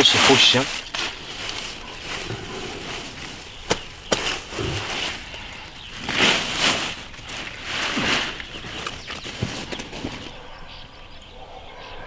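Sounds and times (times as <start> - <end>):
leaves rustling: 0.0 - 10.5
cleaver chopping greens: 3.6 - 5.3.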